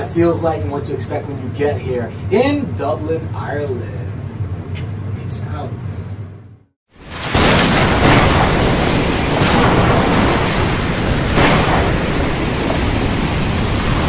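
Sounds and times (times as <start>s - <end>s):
wind: 6.9s - 14.0s
waves breaking: 7.0s - 14.0s.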